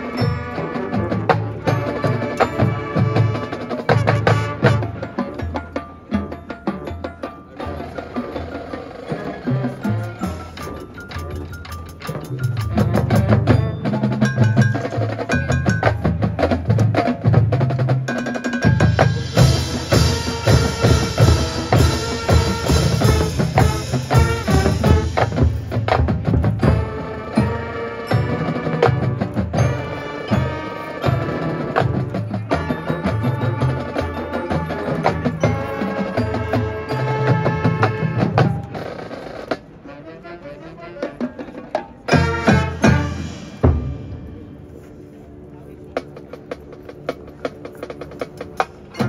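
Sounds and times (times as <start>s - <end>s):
mallet percussion: 0.0s - 38.9s, 41.7s - 45.1s
drumline strokes: 0.0s - 49.0s
marching band playing: 0.0s - 49.0s
heavy low brass: 19.1s - 25.9s, 42.1s - 45.0s.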